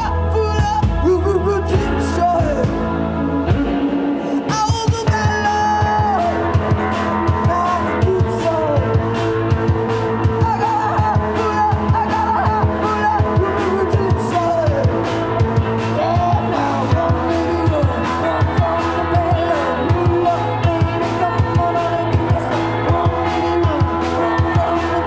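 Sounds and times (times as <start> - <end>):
electric bass: 0.0 - 25.0
live rock band playing: 0.0 - 25.0
woman singing: 16.0 - 25.0.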